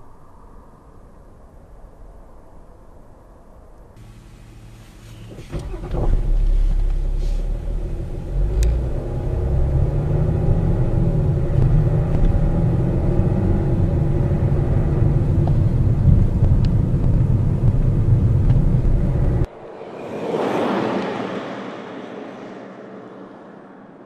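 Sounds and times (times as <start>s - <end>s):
diesel engine pulling: 4.0s - 19.5s
vehicle rumbling over rough ground: 4.0s - 22.5s.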